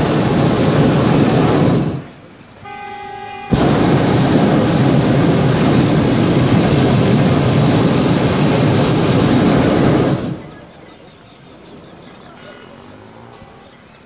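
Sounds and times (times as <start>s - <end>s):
propane burner roaring: 0.0s - 2.8s, 3.4s - 10.8s.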